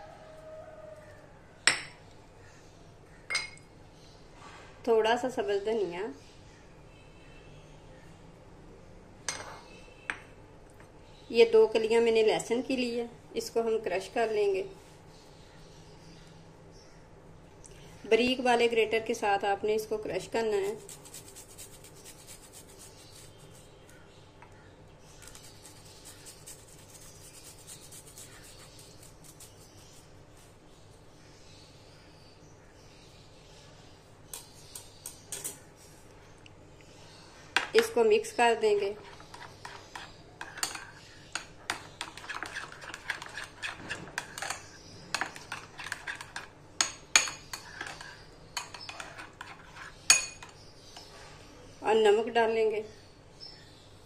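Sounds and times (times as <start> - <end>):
metal spoon clinking in ceramic bowl: 3.3 - 3.7, 39.3 - 50.6
garlic scraping on a grater: 20.4 - 23.6, 25.2 - 30.0, 41.9 - 44.5.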